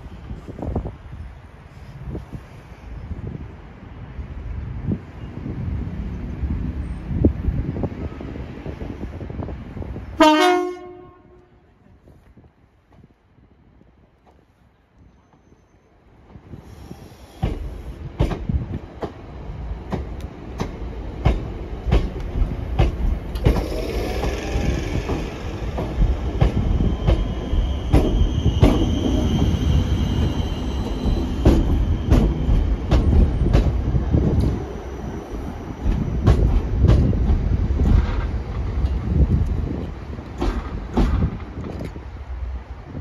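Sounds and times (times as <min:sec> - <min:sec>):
train rumble: 0:00.0 - 0:43.0
train wheels clicking over joints: 0:16.3 - 0:19.2, 0:19.8 - 0:34.7, 0:35.7 - 0:42.1.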